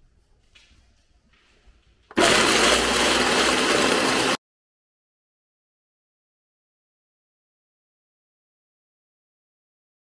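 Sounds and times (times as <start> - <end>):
blender running: 2.1 - 4.4.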